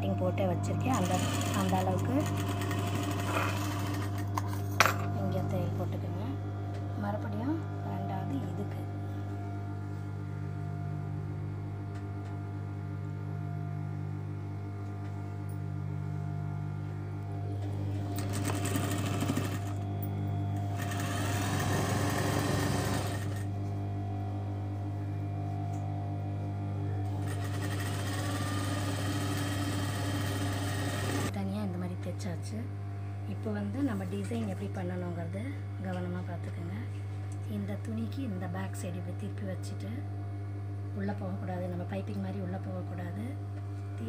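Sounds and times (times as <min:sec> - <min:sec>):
steady low hum: 0:00.0 - 0:44.0
sewing machine stitching: 0:00.7 - 0:04.6, 0:18.1 - 0:19.8, 0:20.7 - 0:23.5, 0:27.1 - 0:31.3.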